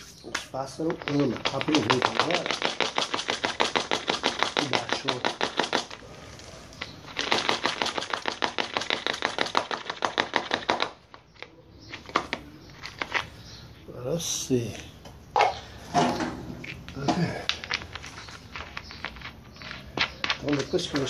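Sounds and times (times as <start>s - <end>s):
bird feed rattling in plastic bottle: 0.5s - 13.3s, 17.5s - 21.0s.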